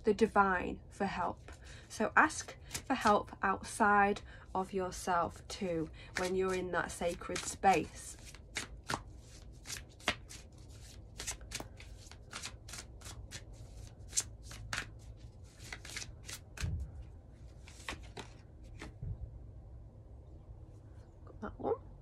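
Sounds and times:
cards being shuffled: 0:02.4 - 0:03.1, 0:06.1 - 0:19.0.

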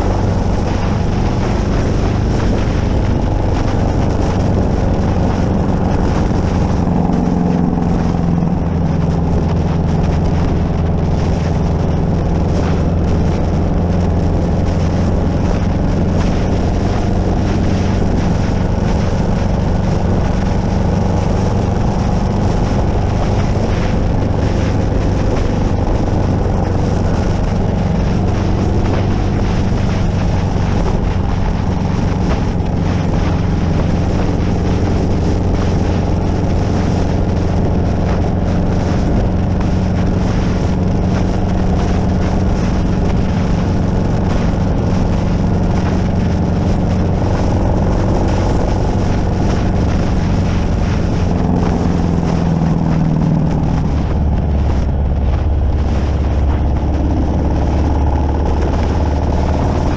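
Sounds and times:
motorcycle engine cruising: 0:00.0 - 0:59.9
wind on microphone: 0:00.0 - 0:59.9.

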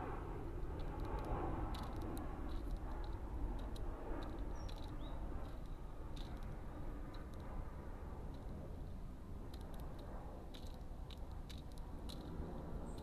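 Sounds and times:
steady low rumble: 0:00.0 - 0:13.0
small bird chirping: 0:04.5 - 0:05.2.

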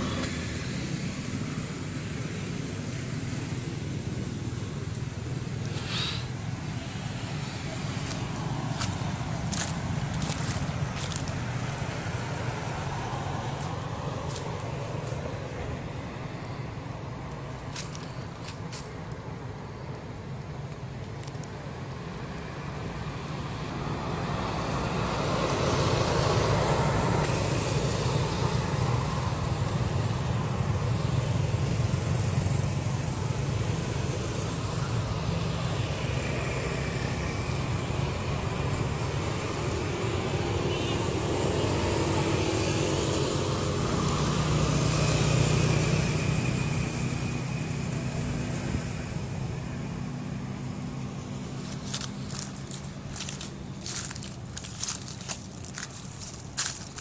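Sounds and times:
road traffic rushing past: 0:00.0 - 0:57.0.

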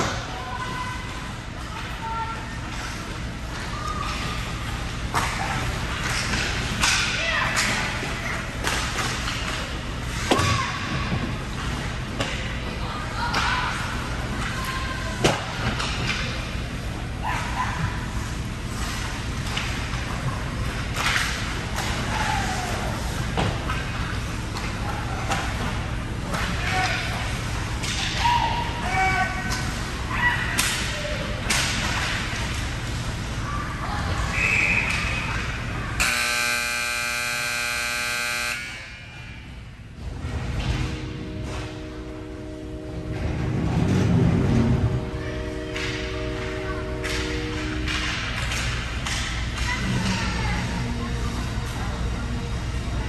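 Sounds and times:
low arena hum: 0:00.0 - 0:53.0
hockey sticks and puck clacking: 0:02.7 - 0:13.8, 0:14.4 - 0:16.5, 0:18.7 - 0:29.8, 0:30.4 - 0:32.8, 0:45.6 - 0:50.2
low hum: 0:30.9 - 0:53.0.

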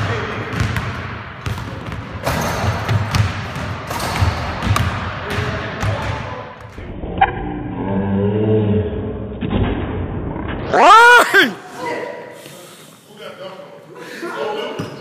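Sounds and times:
basketball bouncing on wooden floor: 0:00.5 - 0:02.1, 0:02.9 - 0:06.2.

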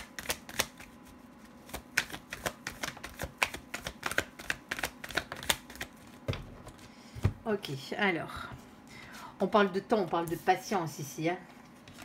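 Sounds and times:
cards being shuffled: 0:00.0 - 0:06.2.

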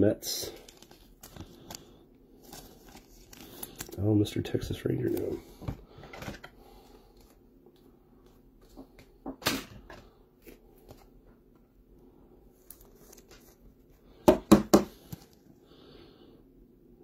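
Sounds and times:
card rustling: 0:00.6 - 0:04.0, 0:05.0 - 0:05.5, 0:12.6 - 0:13.7.

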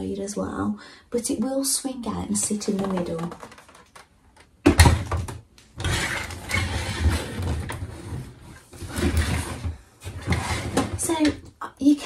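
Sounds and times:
plastic toy rubbing and rattling: 0:02.5 - 0:04.1.

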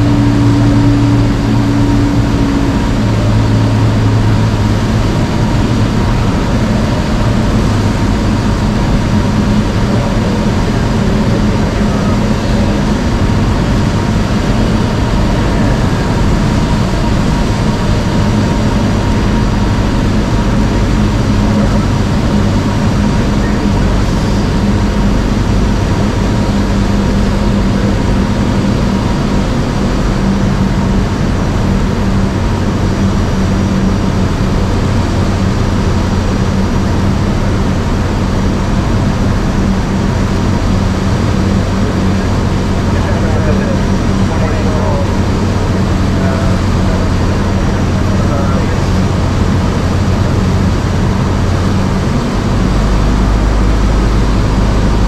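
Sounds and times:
light aircraft engine droning: 0:00.0 - 0:55.0.

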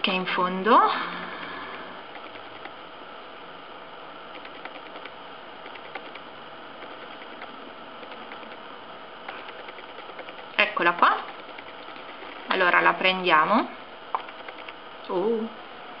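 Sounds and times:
mouse scroll wheel clicking: 0:02.1 - 0:02.8, 0:04.3 - 0:06.2, 0:06.8 - 0:08.6, 0:09.3 - 0:12.6, 0:14.2 - 0:14.8.

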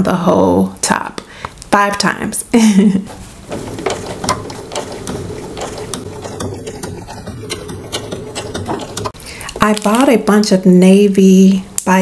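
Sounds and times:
sewing machine running: 0:03.4 - 0:09.2.

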